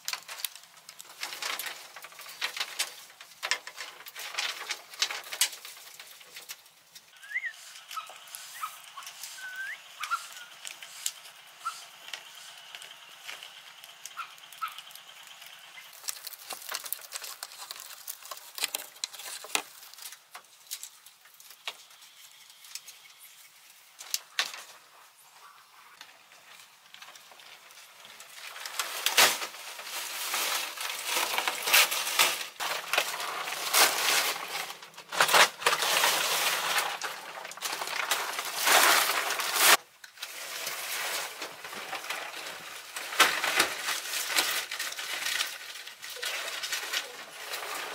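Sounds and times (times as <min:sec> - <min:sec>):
dense crackling hiss: 0:00.0 - 0:47.9
bird chirps: 0:07.2 - 0:10.6.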